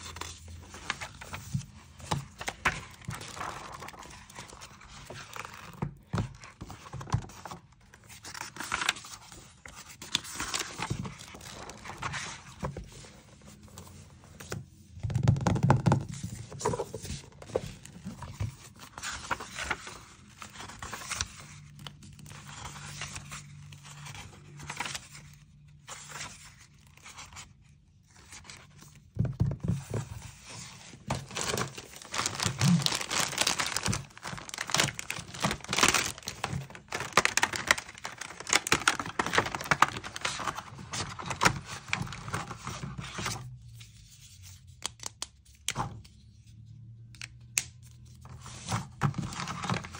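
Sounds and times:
book pages turning: 0.0s - 49.9s
plastic bag crinkling: 31.1s - 41.5s.

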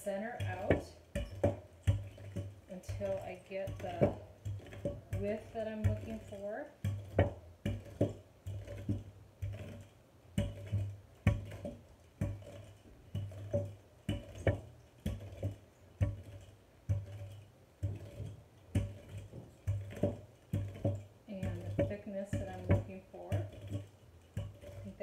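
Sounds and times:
rolling pin rolling dough: 0.0s - 25.0s.

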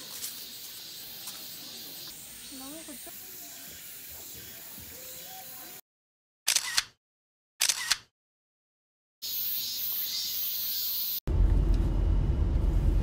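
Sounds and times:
cicadas droning: 0.0s - 5.8s, 9.2s - 11.2s
brief clicks: 7.6s - 8.1s
low car cabin rumble: 11.3s - 13.0s.

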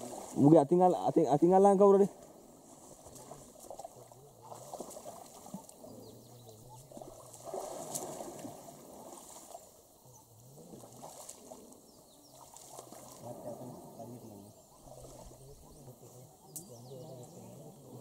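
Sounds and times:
people wading through water: 0.0s - 18.0s
faint low voices: 2.8s - 7.5s, 8.9s - 18.0s.

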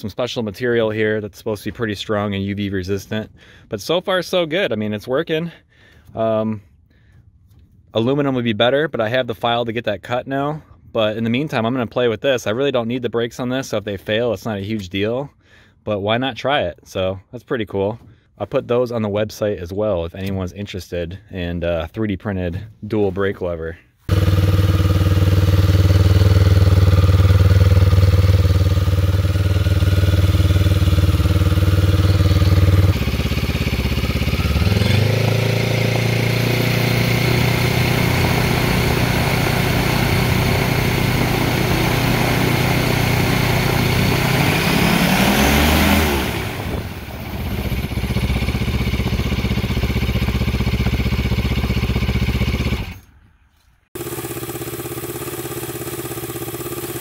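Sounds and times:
snowmobile engine turning propeller: 24.1s - 53.0s.

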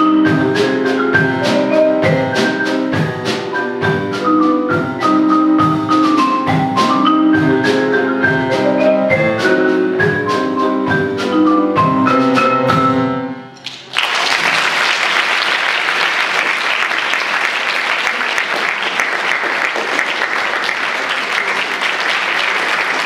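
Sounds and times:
marimba and piano playing: 0.0s - 13.6s
audience applause: 13.6s - 23.0s.

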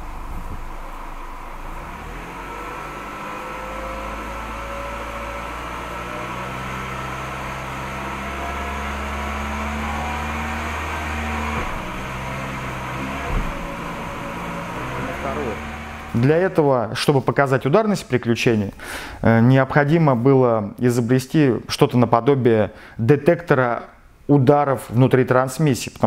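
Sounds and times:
car engine revving: 0.0s - 16.8s
gearbox thump: 11.5s - 12.4s, 13.0s - 14.2s.

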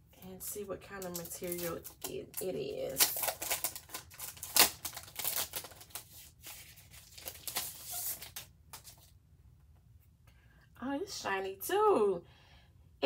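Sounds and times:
plastic sleeve crinkling: 0.9s - 9.1s.

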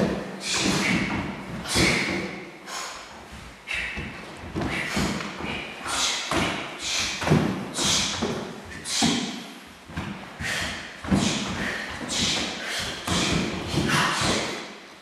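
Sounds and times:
bare feet thudding on wooden floor: 3.3s - 5.6s.

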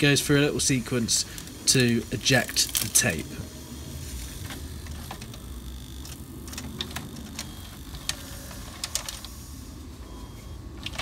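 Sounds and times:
low motor hum: 3.3s - 11.0s.

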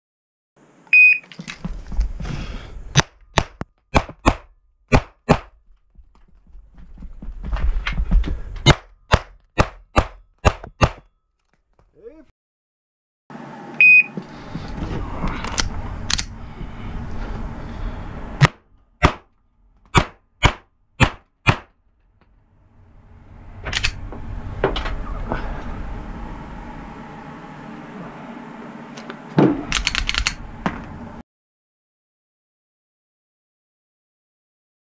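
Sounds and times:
pistol shots: 19.9s - 21.7s.

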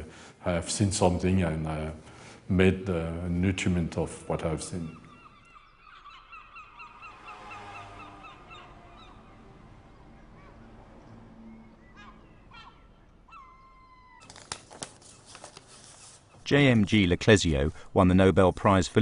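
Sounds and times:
faint bird calls: 4.2s - 14.2s
paper rustling: 14.2s - 17.1s.

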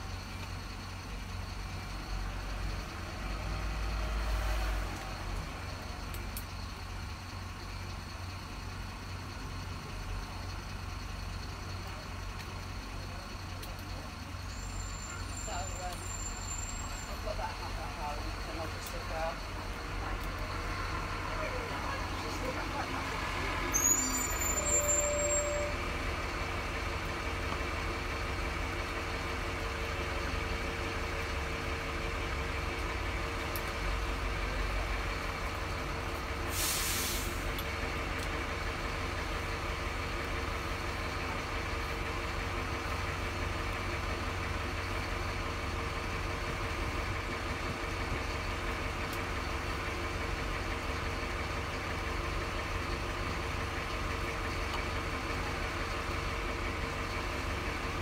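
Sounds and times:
short hiss: 36.5s - 37.5s.

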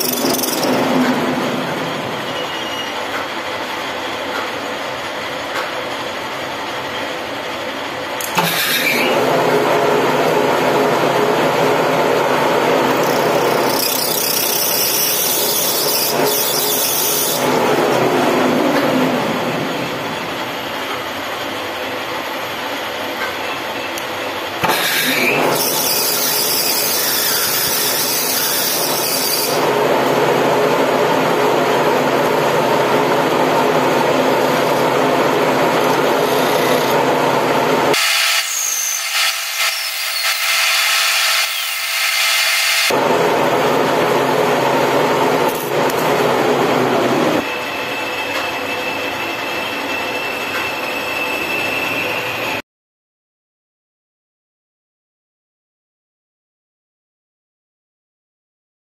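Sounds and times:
lathe running: 0.0s - 2.7s, 3.4s - 23.2s, 23.8s - 51.8s
file scraping metal threads: 13.1s - 17.6s.

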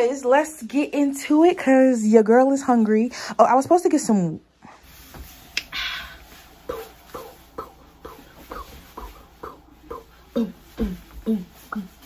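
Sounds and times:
woman making rhythmic vocal sounds: 6.6s - 12.0s.

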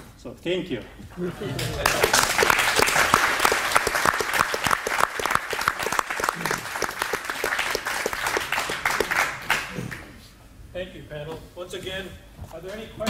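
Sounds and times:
crowd applauding: 1.3s - 10.2s.

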